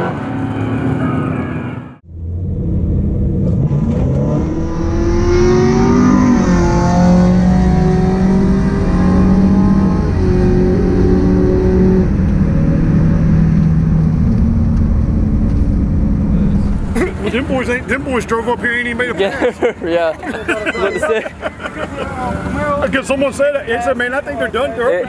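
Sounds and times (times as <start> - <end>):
engine at full throttle: 2.1 - 18.0.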